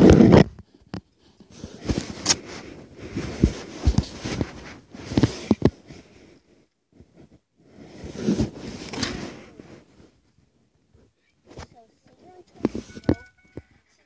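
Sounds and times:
phone handling rustling and scraping: 0:00.0 - 0:06.2, 0:07.0 - 0:10.2, 0:12.5 - 0:13.7.

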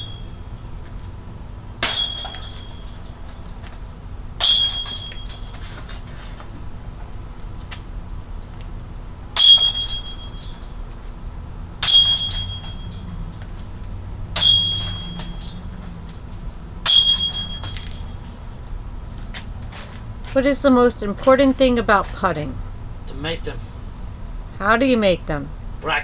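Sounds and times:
discs clanking on metal chains: 0:00.0 - 0:00.4, 0:01.8 - 0:03.7, 0:04.4 - 0:06.4, 0:09.4 - 0:10.7, 0:11.8 - 0:13.5, 0:14.4 - 0:18.4
chains jingling: 0:01.8 - 0:03.4, 0:04.5 - 0:05.9, 0:11.8 - 0:13.3, 0:14.4 - 0:18.4.

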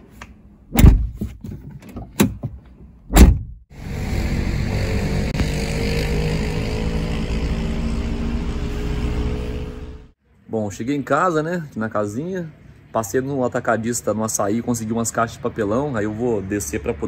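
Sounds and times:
car engine and road noise: 0:00.0 - 0:10.2
car door thunking shut: 0:00.7 - 0:01.4, 0:03.1 - 0:03.6
car door clicks: 0:00.7 - 0:03.6.

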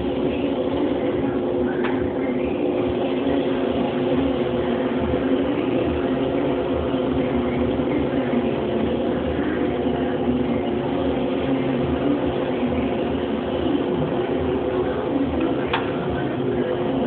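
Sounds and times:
mechanical drone: 0:00.0 - 0:17.0.

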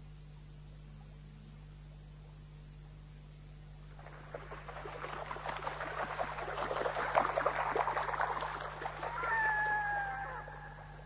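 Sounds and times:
flock of birds chattering: 0:04.1 - 0:11.0
long drawn-out bird call: 0:04.1 - 0:11.0.

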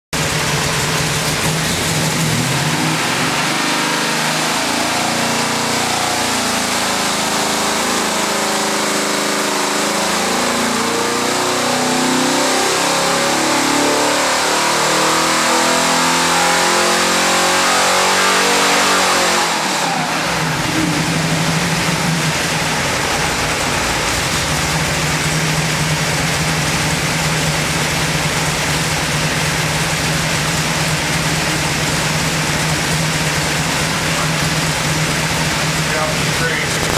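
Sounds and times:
engine idling: 0:00.2 - 0:03.5, 0:20.1 - 0:36.9
engine revving under load: 0:00.8 - 0:36.9.

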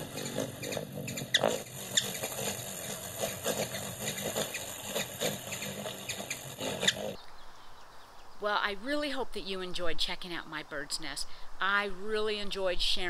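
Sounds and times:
hummingbird chips and squeaks: 0:00.0 - 0:07.3.

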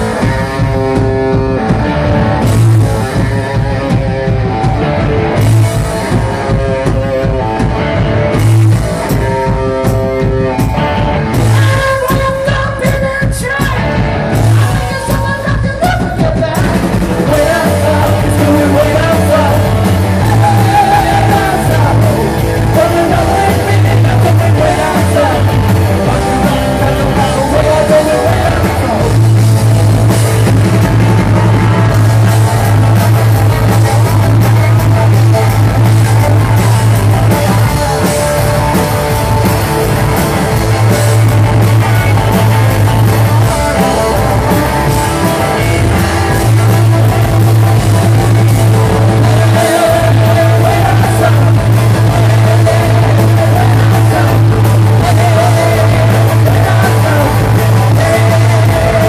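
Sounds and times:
drums: 0:00.0 - 0:59.0
electric guitars: 0:00.0 - 0:59.0
person singing into a microphone: 0:11.4 - 0:29.4, 0:45.3 - 0:46.9, 0:48.2 - 0:59.0.

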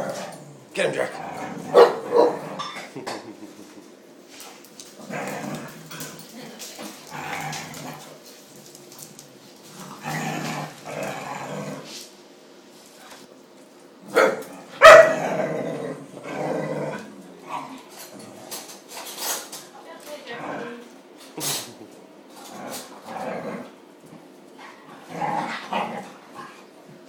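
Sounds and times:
dogs barking and growling: 0:00.0 - 0:04.1, 0:04.7 - 0:12.0, 0:14.0 - 0:19.4, 0:20.3 - 0:26.8.

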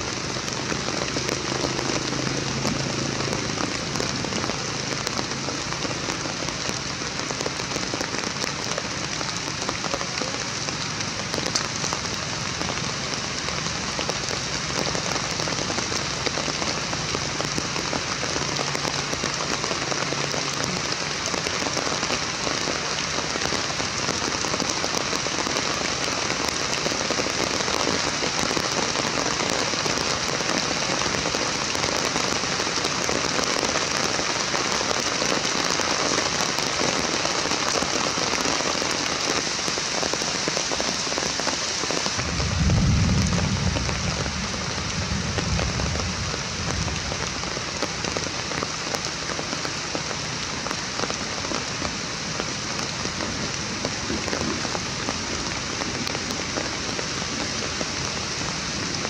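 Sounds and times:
steady rain falling: 0:00.0 - 0:59.0
low rumble: 0:42.2 - 0:48.2.

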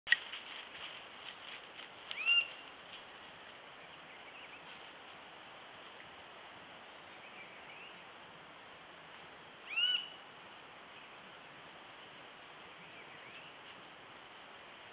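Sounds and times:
microphone hiss: 0:00.1 - 0:14.9
bird calls: 0:02.1 - 0:02.7, 0:09.7 - 0:10.2.

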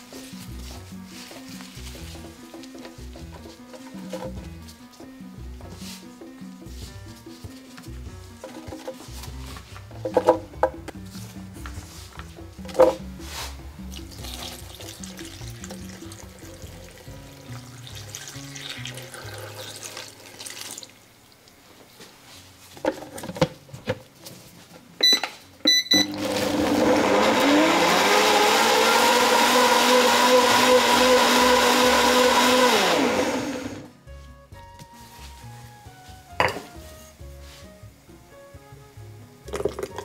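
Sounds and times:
short beeps: 0:25.0 - 0:26.2
blender motor running: 0:26.0 - 0:33.9.

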